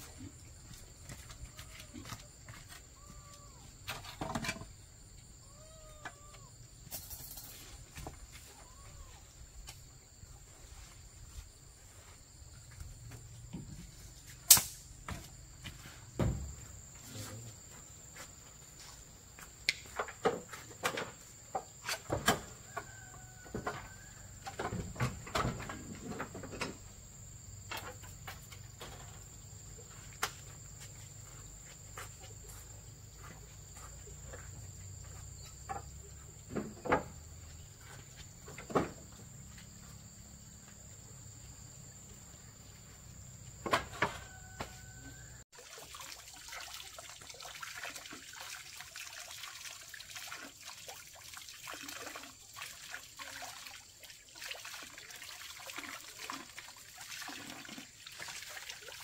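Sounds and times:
objects knocking and clattering: 3.9 - 4.8.

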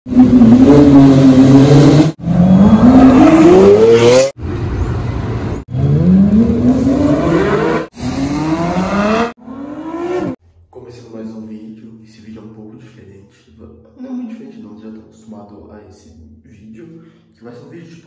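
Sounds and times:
supercar engines revving: 0.1 - 4.7, 5.3 - 10.4.

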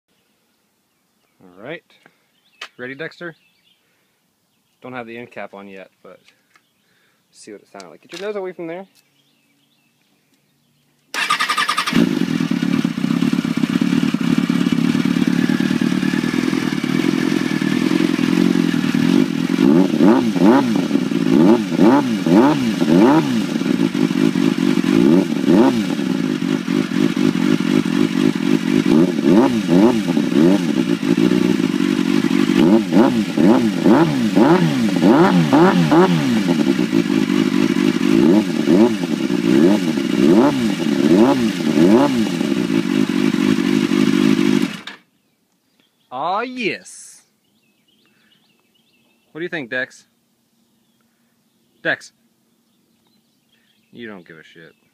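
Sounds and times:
motorcycle engine revving: 11.1 - 45.1
motorcycle engine idling: 11.2 - 45.2.

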